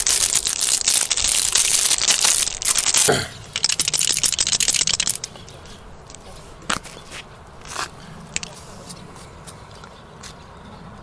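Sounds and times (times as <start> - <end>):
plastic packaging crinkling and tearing: 0.0 - 5.6.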